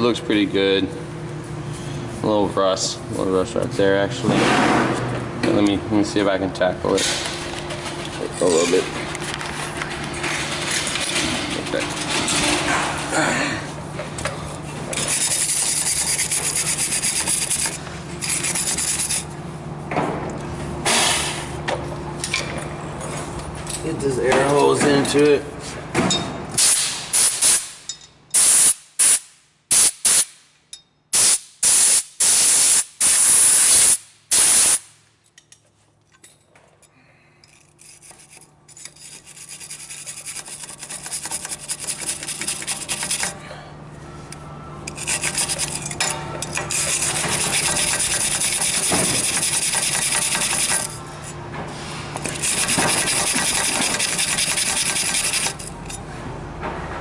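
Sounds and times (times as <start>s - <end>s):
hand tool scraping metal: 14.9s - 19.3s, 37.4s - 43.4s, 44.9s - 51.4s, 52.2s - 56.0s
compressed air blasts: 26.6s - 27.8s, 28.4s - 30.5s, 31.1s - 35.0s.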